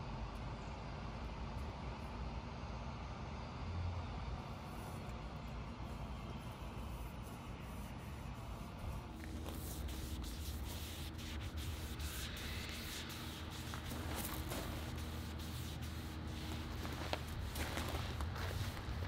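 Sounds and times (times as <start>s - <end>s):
steady low hum: 0.0s - 19.0s
foam brush rubbing on wood: 5.9s - 19.0s.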